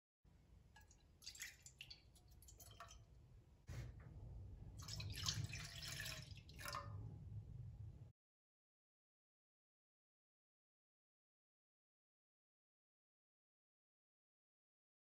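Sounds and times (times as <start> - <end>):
low steady hum: 0.3 - 8.1
milk pouring into a pan: 0.7 - 3.3, 4.8 - 7.0.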